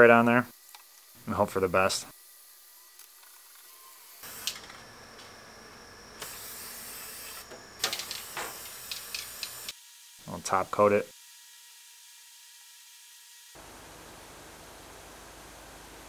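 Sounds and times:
small clicks: 7.8 - 9.8.

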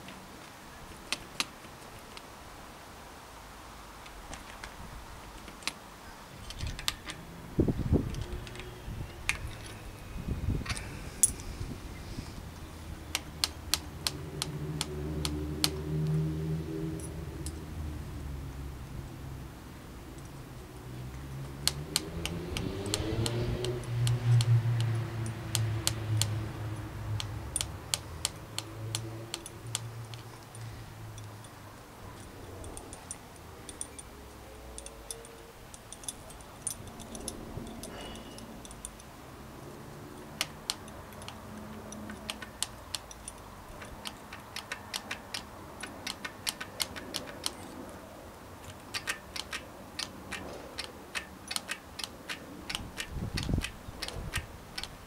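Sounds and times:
metal brake parts clicking: 6.4 - 7.2, 40.2 - 47.9, 48.6 - 55.0.

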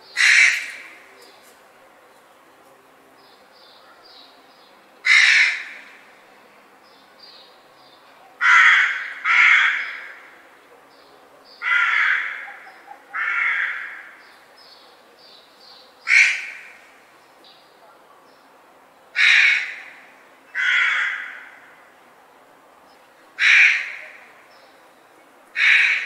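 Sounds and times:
crow cawing: 0.1 - 1.1, 5.0 - 6.0, 8.4 - 10.5, 11.6 - 14.3, 16.0 - 16.8, 19.2 - 21.8, 23.4 - 24.3, 25.6 - 26.0.

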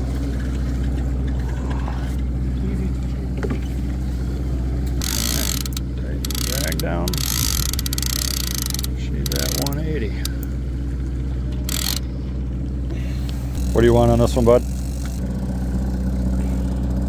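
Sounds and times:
boat engine hum: 0.0 - 17.0
fishing reel clicker buzzing: 5.0 - 10.5, 11.7 - 12.0.

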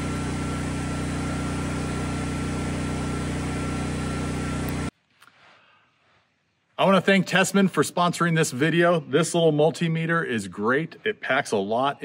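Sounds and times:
battery charger hum and fan: 0.0 - 4.9.

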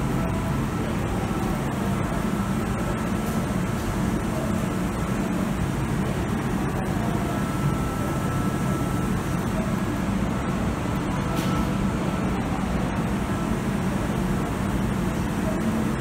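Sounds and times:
stationary train hum and rush: 0.0 - 16.0
faint high whine: 6.2 - 13.4.

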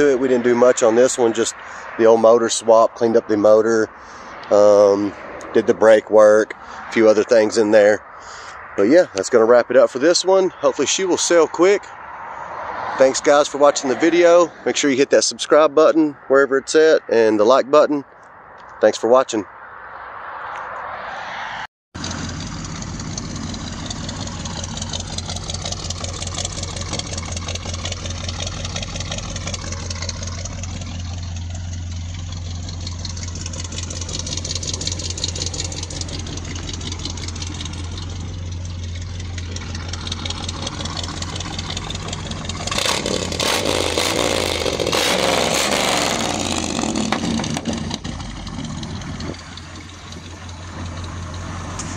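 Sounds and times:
pickup truck engine running: 22.0 - 51.9.

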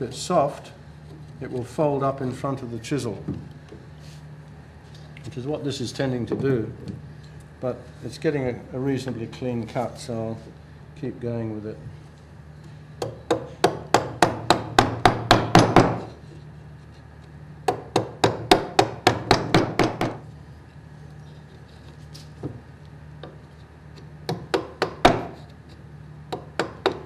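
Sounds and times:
chisel tapped into wood: 26.3 - 27.0.

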